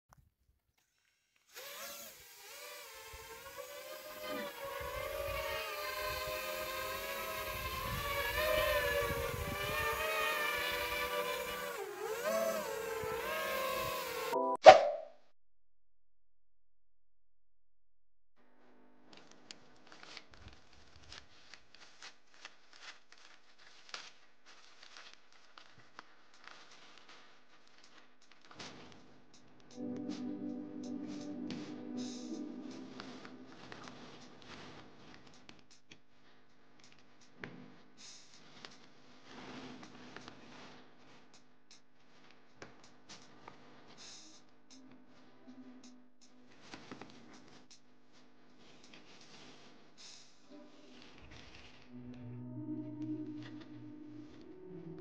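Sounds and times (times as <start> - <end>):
drone motors whining: 1.6 - 14.4.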